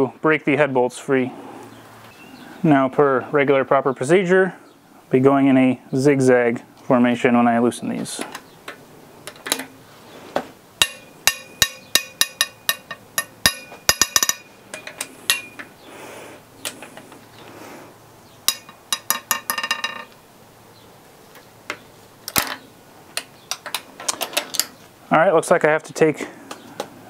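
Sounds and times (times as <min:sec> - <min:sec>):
ratchet wrench clicking: 0:10.8 - 0:15.6.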